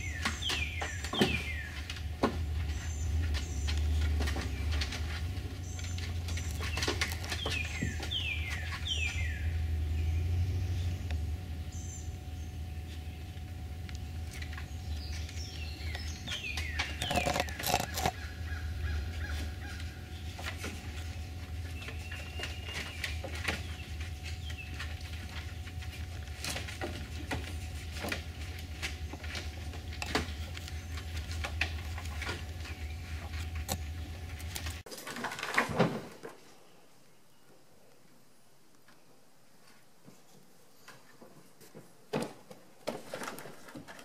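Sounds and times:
birds calling: 0.0 - 26.4, 27.2 - 34.8
steady low hum: 0.0 - 34.9.

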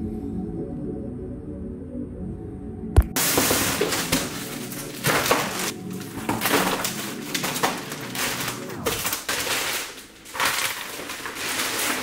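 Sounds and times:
packaging and paper crinkling: 3.2 - 12.0.

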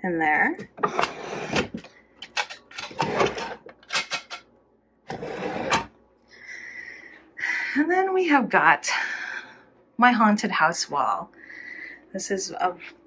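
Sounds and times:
wooden drawer scraping and knocking: 0.6 - 1.9, 2.8 - 4.4, 5.1 - 5.9.

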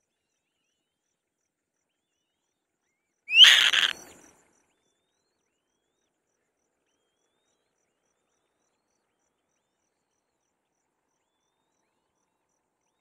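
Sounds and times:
kite screech: 3.3 - 4.1.

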